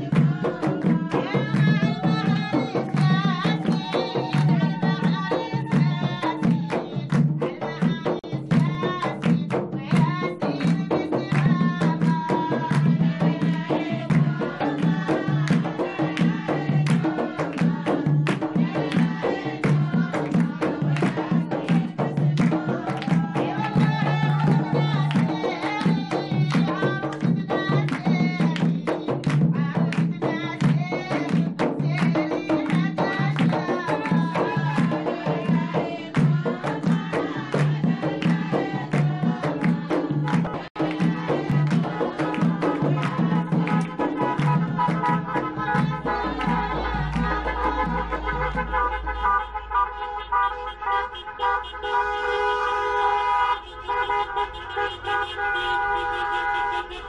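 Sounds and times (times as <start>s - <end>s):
drums: 0.0s - 49.2s
people singing: 0.0s - 57.0s
hand clapping: 2.8s - 5.1s, 8.6s - 12.9s, 14.1s - 34.9s, 36.1s - 48.6s.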